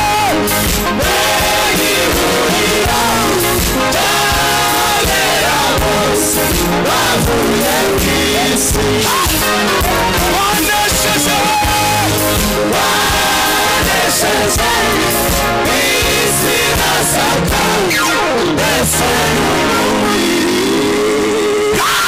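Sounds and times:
amplified band playing: 0:00.0 - 0:21.7
singers singing: 0:00.0 - 0:21.9.

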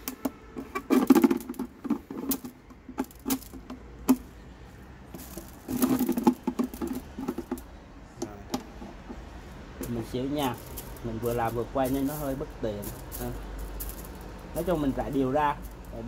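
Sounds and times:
beans rattling on plastic: 0:00.0 - 0:04.3, 0:05.1 - 0:07.7, 0:09.8 - 0:16.0
plastic bucket knocks: 0:05.7 - 0:07.6.

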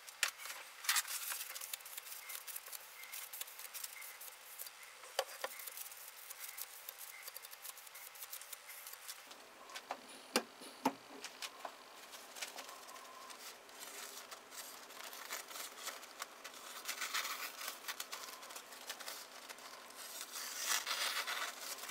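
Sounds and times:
paper towel rustling on knife: 0:12.0 - 0:21.9.

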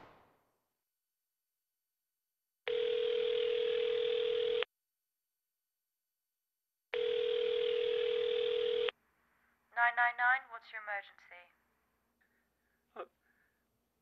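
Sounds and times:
telephone ringback tone: 0:02.7 - 0:04.7, 0:07.0 - 0:08.9.

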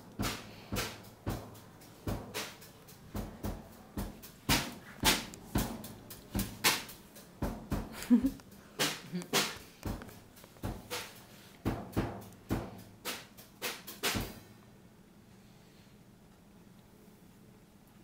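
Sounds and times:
footsteps on tiled floor: 0:00.0 - 0:12.8.

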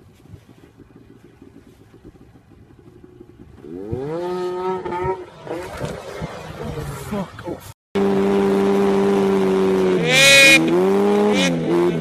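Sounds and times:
snowmobile engine revving: 0:03.0 - 0:12.0.

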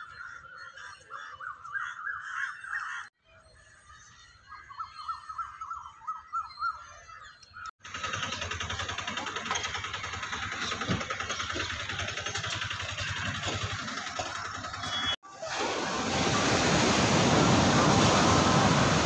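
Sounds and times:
road noise: 0:08.5 - 0:19.0.

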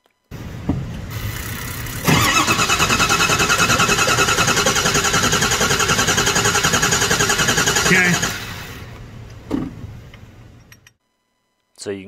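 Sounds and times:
diesel engine cranking: 0:01.0 - 0:09.0.

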